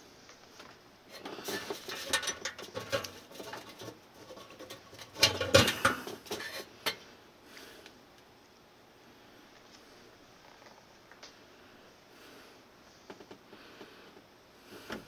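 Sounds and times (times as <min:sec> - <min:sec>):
hand scraping sheet metal: 0:01.2 - 0:06.7.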